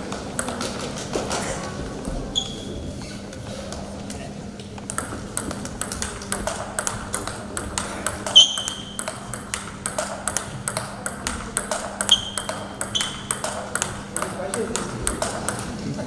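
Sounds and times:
sharp shoe squeaks: 0:02.4 - 0:02.7, 0:08.3 - 0:09.0, 0:12.0 - 0:13.3
table tennis ball clicking: 0:04.8 - 0:15.8.

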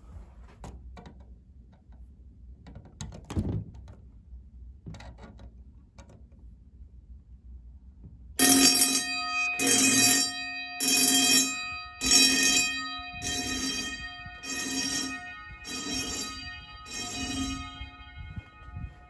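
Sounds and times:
fire alarm bells ringing in pulses: 0:08.4 - 0:19.0.

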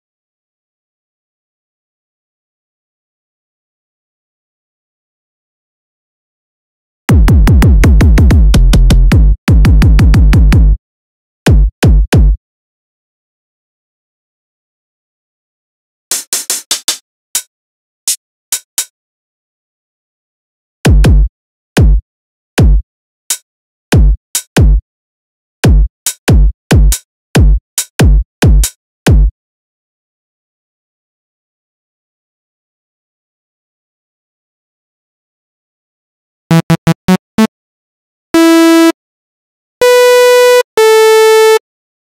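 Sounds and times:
snappy drum hits: 0:07.1 - 0:10.7
electronic kick drum hits: 0:07.1 - 0:10.8, 0:11.5 - 0:12.4, 0:20.9 - 0:22.0, 0:24.0 - 0:24.8, 0:25.7 - 0:29.3.

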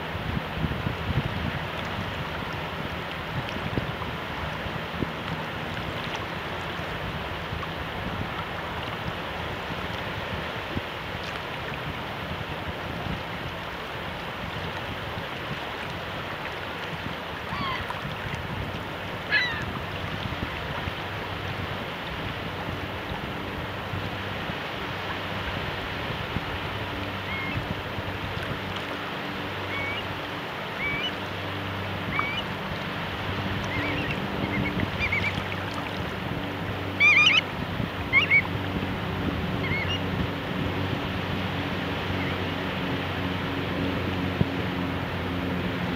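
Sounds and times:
tide rippling over sand: 0:00.0 - 0:45.9
wind: 0:00.0 - 0:45.9
short bird calls: 0:19.3 - 0:19.6, 0:37.0 - 0:37.4.

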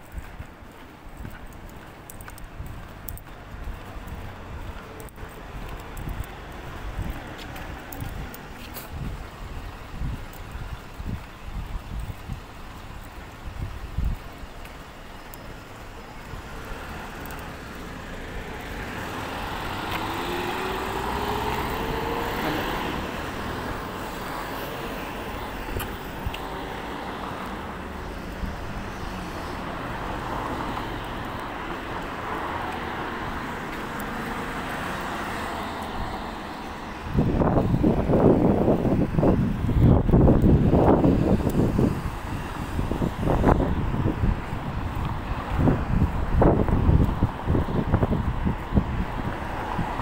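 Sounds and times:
road traffic passing: 0:00.0 - 0:50.0
wind buffeting microphone: 0:00.0 - 0:50.0
vehicle accelerating past: 0:16.6 - 0:25.4.

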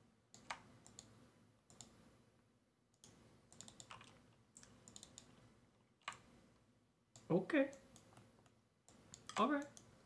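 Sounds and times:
keyboard and mouse clicks: 0:00.3 - 0:02.0, 0:02.9 - 0:06.4, 0:07.1 - 0:10.0.

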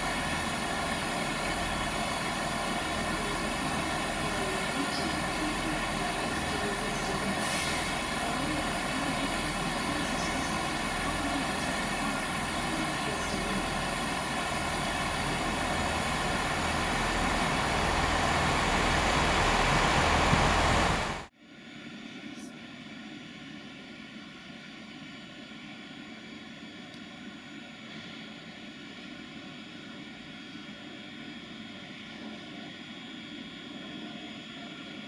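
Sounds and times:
train rumble and hum: 0:00.0 - 0:21.3.

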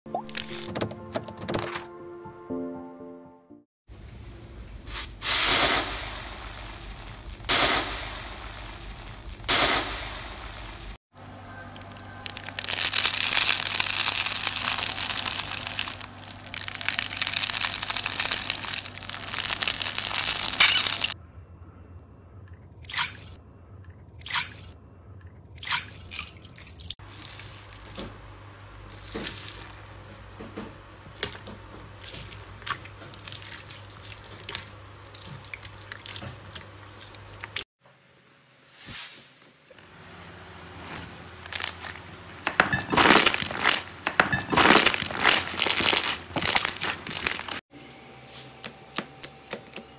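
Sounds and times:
slime crackling when squeezed: 0:11.7 - 0:21.2, 0:44.5 - 0:47.6
slime crunching: 0:11.8 - 0:21.2, 0:31.2 - 0:37.6, 0:42.8 - 0:47.6
wet slime squishes: 0:11.8 - 0:21.2, 0:31.1 - 0:37.6, 0:41.4 - 0:42.1, 0:42.8 - 0:47.6.

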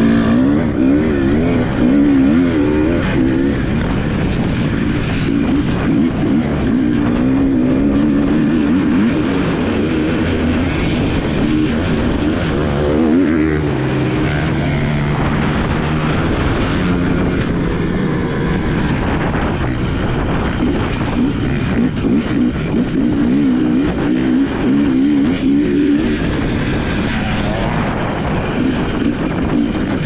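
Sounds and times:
dirt bike engines revving: 0:00.0 - 0:30.0.

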